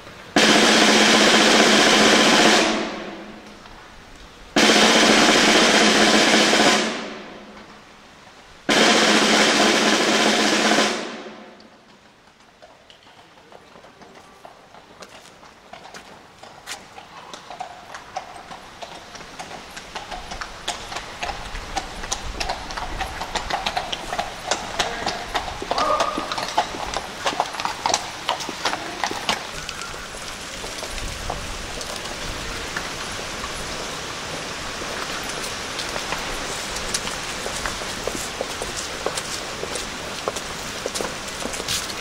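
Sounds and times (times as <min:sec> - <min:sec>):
rushing rolling noise: 0:00.0 - 0:03.9, 0:04.5 - 0:12.1
horse hooves clip-clopping on road: 0:00.0 - 0:42.0.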